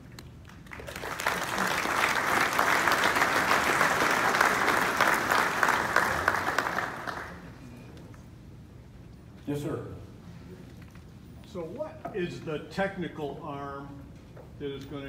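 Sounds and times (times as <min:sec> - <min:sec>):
audience applauding: 0:00.4 - 0:07.6.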